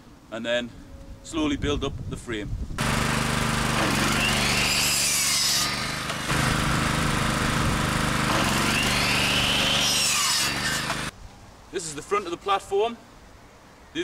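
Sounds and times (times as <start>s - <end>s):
mitre saw cutting wood: 2.8s - 11.1s.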